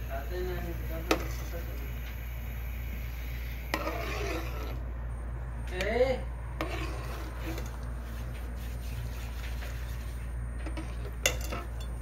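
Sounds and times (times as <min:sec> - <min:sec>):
steady low hum: 0:00.0 - 0:12.0
ladle stirring syrup in pot: 0:03.6 - 0:04.8, 0:06.6 - 0:12.0.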